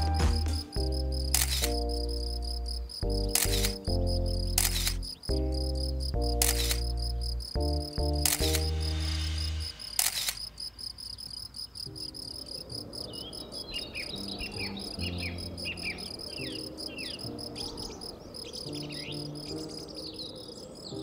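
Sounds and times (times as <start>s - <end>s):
soft sustained music notes: 0.0s - 10.0s, 11.9s - 21.0s
crickets chirping: 0.0s - 21.0s
sharp click: 0.3s - 2.0s, 3.2s - 5.2s, 6.2s - 7.1s, 8.0s - 10.6s
songbird whistling: 13.0s - 21.0s.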